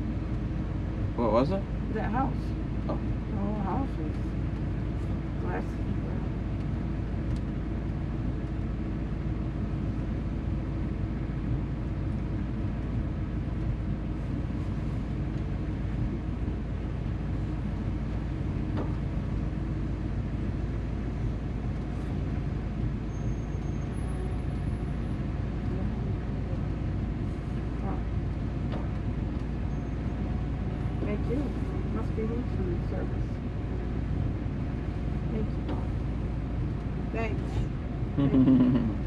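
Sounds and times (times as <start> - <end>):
car engine and road rumble: 0.0 - 39.0
steady hum: 31.0 - 39.0.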